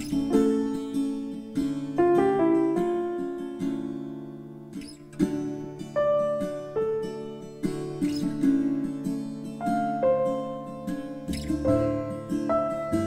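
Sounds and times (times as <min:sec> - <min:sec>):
plucked guitar-like music: 0:00.0 - 0:13.0.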